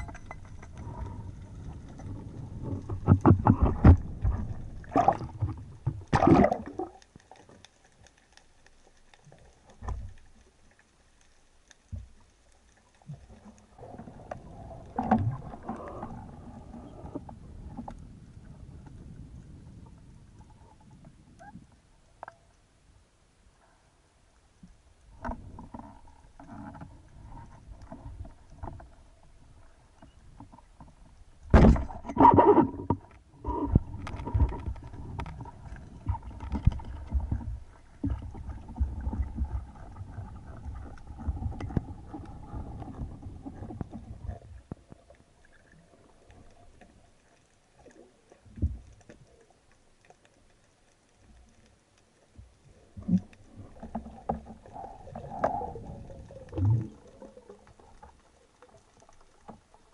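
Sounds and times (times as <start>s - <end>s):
underwater sloshing and rumbling: 0.0s - 59.9s
thump: 31.5s - 32.0s.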